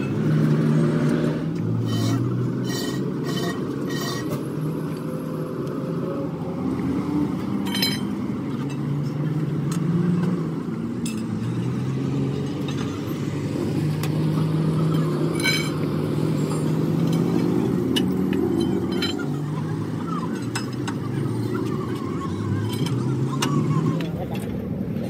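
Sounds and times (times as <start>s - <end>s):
metal tools clinking on wheel hubs: 0.0s - 0.5s, 1.5s - 5.2s, 7.4s - 24.6s
vehicle engines rumbling: 0.0s - 25.0s.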